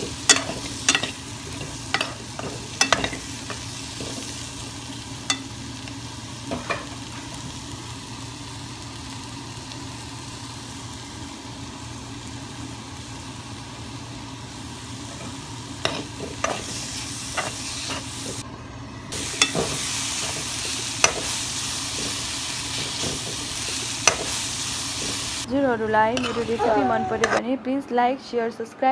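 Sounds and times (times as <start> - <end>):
vegetables sizzling in oil: 0.0 - 18.4, 19.1 - 27.3
metal spoon scraping wok: 15.2 - 18.4, 26.1 - 27.4.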